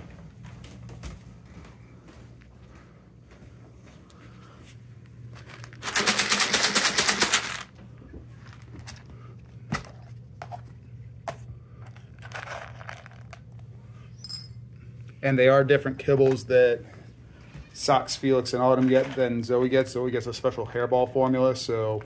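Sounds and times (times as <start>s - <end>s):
dry kibble rattling: 5.3s - 7.7s, 8.3s - 9.2s, 12.1s - 13.4s
plastic scoop rustling in kibble: 5.3s - 7.7s, 8.3s - 10.6s, 12.0s - 13.4s.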